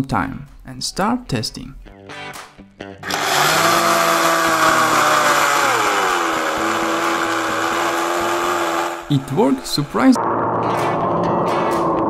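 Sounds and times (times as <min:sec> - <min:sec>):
pump motor whine: 0:03.0 - 0:09.6.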